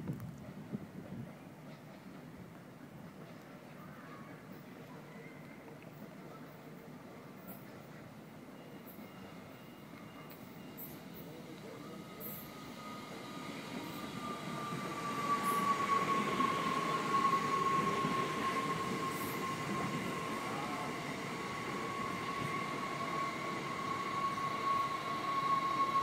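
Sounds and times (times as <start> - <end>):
train high whine: 6.0 - 26.0
train rail rumble: 8.9 - 26.0.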